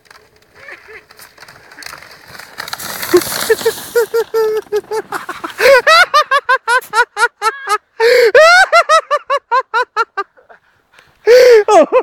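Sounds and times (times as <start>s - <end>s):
person laughing hard: 3.1s - 10.6s, 11.3s - 12.0s.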